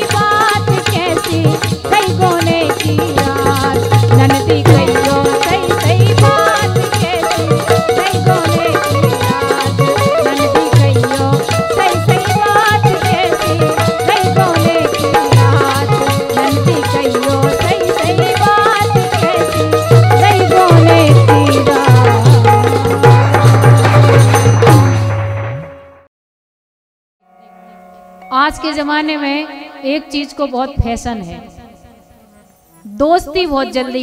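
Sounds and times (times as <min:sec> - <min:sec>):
hand drum beats: 0:00.0 - 0:25.9
fast percussion: 0:00.0 - 0:26.1
wavering folk melody: 0:03.8 - 0:24.9.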